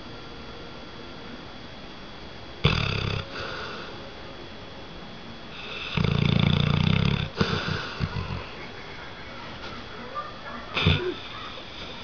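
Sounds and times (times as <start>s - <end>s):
dog snoring loudly: 2.6s - 3.9s, 5.5s - 8.6s
dog stuttering breaths: 7.2s - 9.8s.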